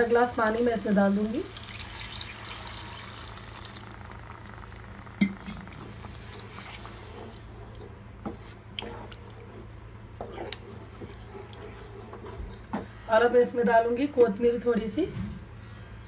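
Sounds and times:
water hissing in hot pan: 0.0 - 4.9
spatula stirring curry: 5.8 - 12.9.

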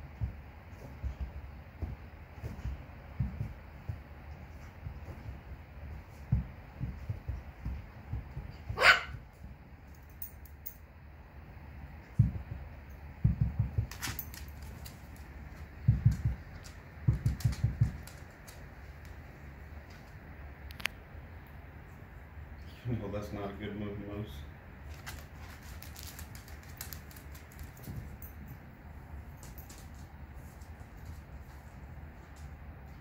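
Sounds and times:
small dog barking: 8.7 - 9.2.

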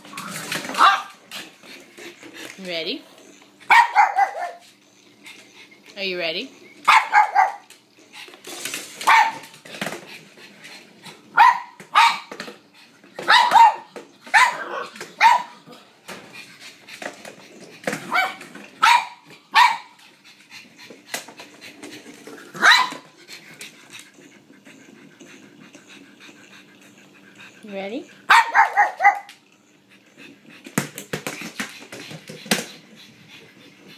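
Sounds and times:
dog barking: 0.8 - 1.1, 3.7 - 4.6, 6.9 - 7.6, 9.1 - 9.4, 11.4 - 12.3, 13.2 - 15.5, 18.1 - 19.9, 22.6 - 23.0, 28.3 - 29.3.

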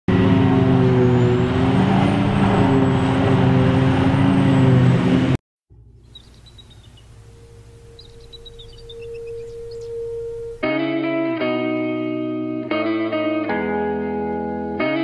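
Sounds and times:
large engine running: 0.1 - 10.6
faint music with chirping notes: 5.8 - 10.8.

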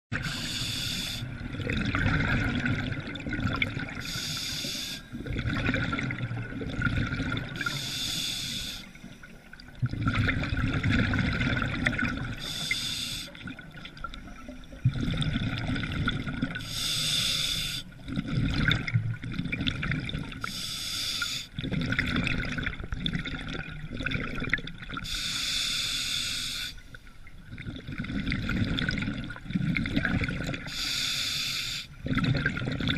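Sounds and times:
exhaled bubbles gurgling: 0.1 - 25.5, 27.1 - 31.0, 31.8 - 32.9
diver inhaling through regulator: 0.2 - 1.4, 4.0 - 5.2, 7.6 - 9.2, 12.3 - 13.4, 16.6 - 18.0, 20.4 - 21.6, 25.0 - 26.9, 30.7 - 32.0.

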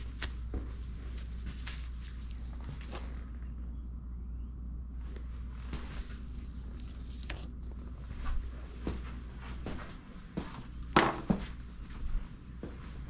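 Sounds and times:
footsteps: 0.0 - 3.4, 5.1 - 13.0
handling knocks and rustles: 0.0 - 3.5
low hum: 0.0 - 13.0.

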